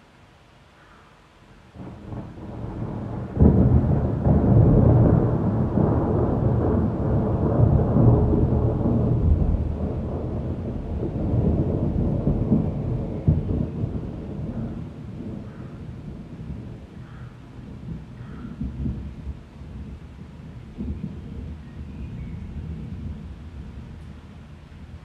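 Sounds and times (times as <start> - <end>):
thunder clap: 1.8 - 16.8, 20.6 - 24.1
thunder rumbling: 1.8 - 25.0.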